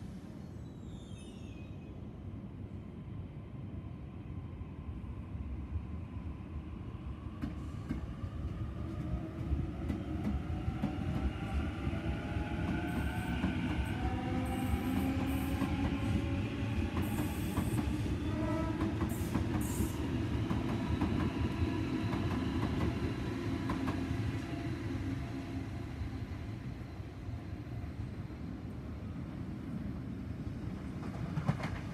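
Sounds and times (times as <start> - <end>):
train wheels rumbling on rail: 7.3 - 26.0, 30.6 - 31.9.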